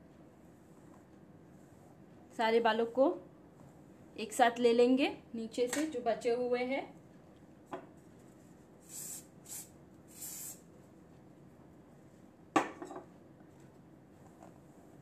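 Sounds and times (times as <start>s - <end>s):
aerosol spray hissing: 8.8s - 10.6s.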